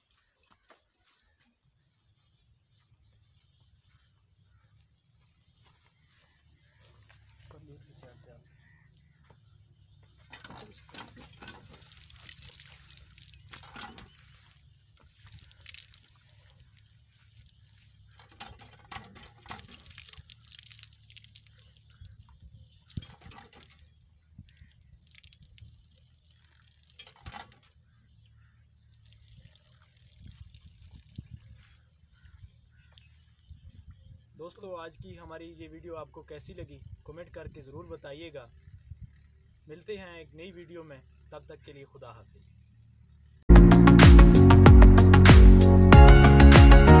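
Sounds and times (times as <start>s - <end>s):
water splashing and dripping: 10.2s - 27.9s, 28.7s - 33.8s.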